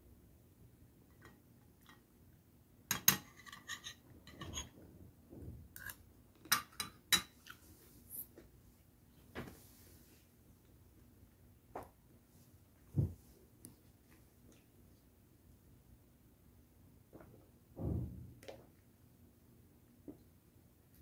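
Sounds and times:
spoon scraping dish: 0:03.0 - 0:04.7.

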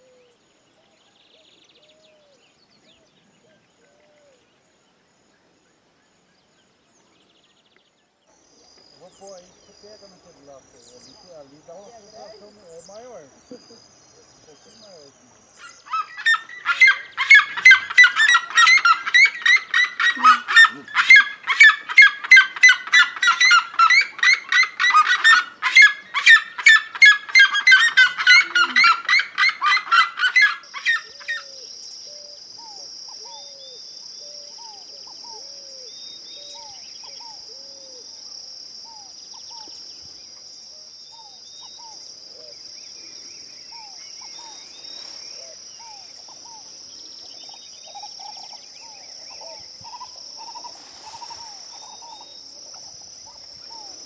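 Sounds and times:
faint bird calls: 0:08.3 - 0:38.2, 0:38.8 - 0:54.0
insects buzzing: 0:08.3 - 0:54.0
birds yelping cries: 0:15.5 - 0:38.0.

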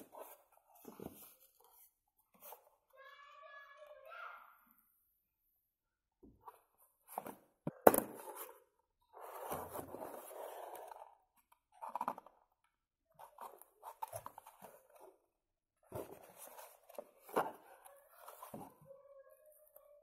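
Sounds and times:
cardboard flaps scraping and rustling: 0:09.2 - 0:11.0.

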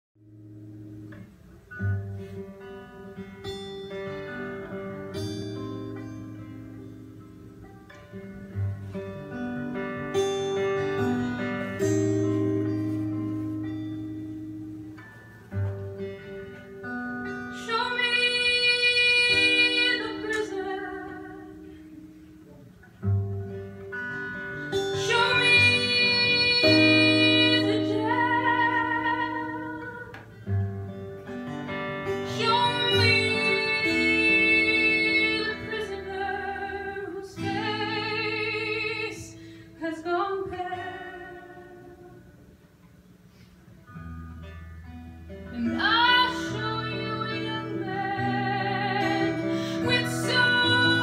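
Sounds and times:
acoustic guitar: 0:00.2 - 0:51.0
woman singing: 0:17.2 - 0:21.8, 0:24.7 - 0:30.3, 0:32.1 - 0:42.4, 0:45.5 - 0:51.0.

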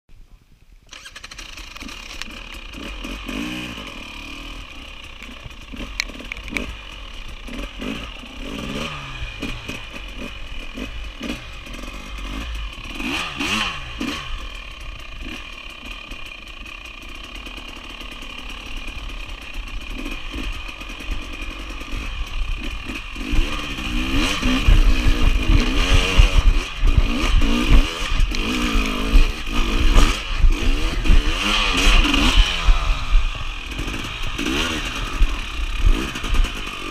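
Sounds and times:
bike rattling: 0:00.9 - 0:36.9
dirt bike engine revving: 0:00.9 - 0:36.9
heavy low rumble: 0:19.0 - 0:36.6.

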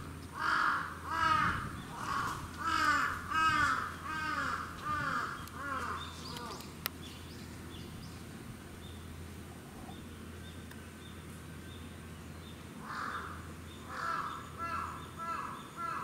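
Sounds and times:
low steady hum: 0:00.0 - 0:16.0
crow cawing: 0:00.3 - 0:06.6, 0:12.8 - 0:16.0.

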